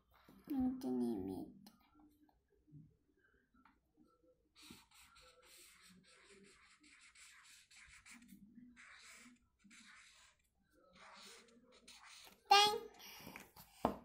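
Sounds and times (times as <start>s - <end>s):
marker scratching on paper: 4.6s - 13.9s.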